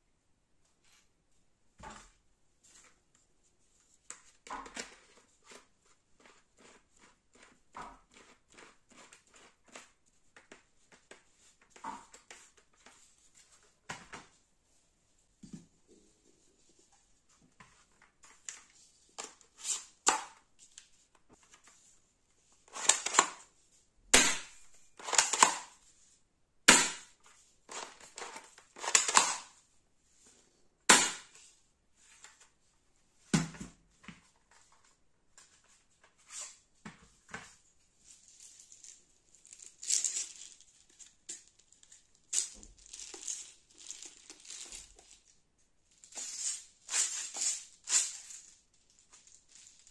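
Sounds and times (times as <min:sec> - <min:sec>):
toy gun plastic clicks and rattles: 0:22.7 - 0:23.4, 0:24.3 - 0:25.8, 0:27.7 - 0:29.6.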